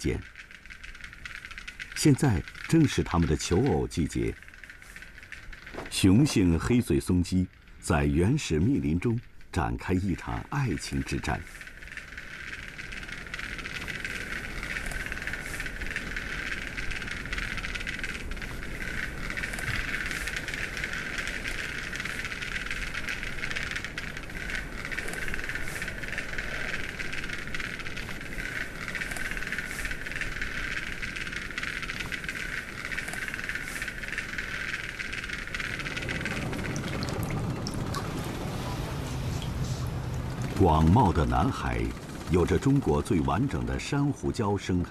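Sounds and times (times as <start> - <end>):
bird display hiss: 10.5 - 37.3, 38.0 - 40.6.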